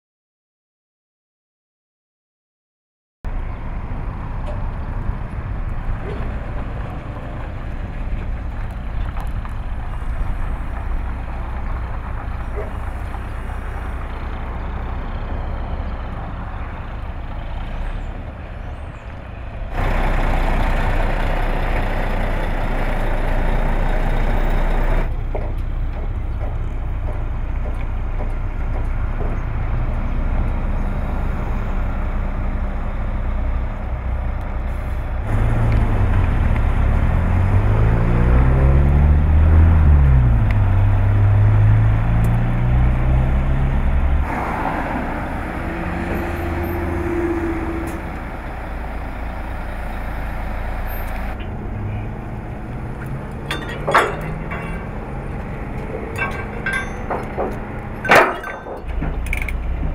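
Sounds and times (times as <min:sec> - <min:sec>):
truck diesel engine revving: 0:03.8 - 0:25.2, 0:28.5 - 0:58.3.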